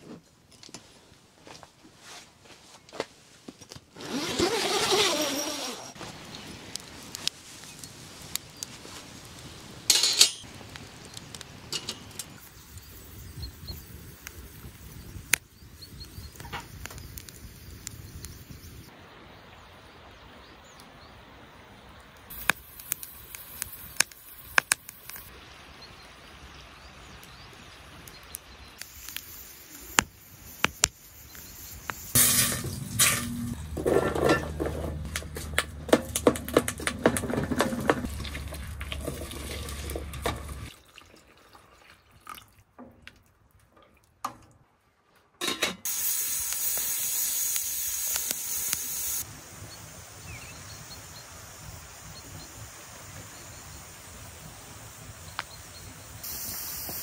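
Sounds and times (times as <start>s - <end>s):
metal grill grate and kettle clinking: 9.9s - 10.5s, 11.6s - 12.4s, 32.2s - 40.7s, 45.4s - 45.9s.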